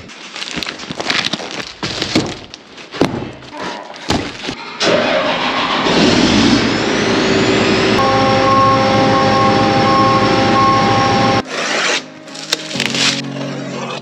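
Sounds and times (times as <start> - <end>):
boxes knocking and crinkling: 0.0 - 4.6
steady machine noise: 5.4 - 11.4.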